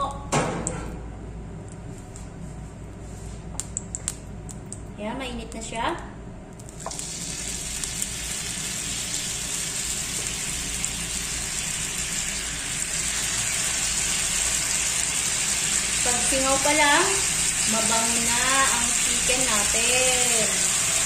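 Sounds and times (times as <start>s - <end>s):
chicken sizzling in a pan: 6.9s - 21.0s.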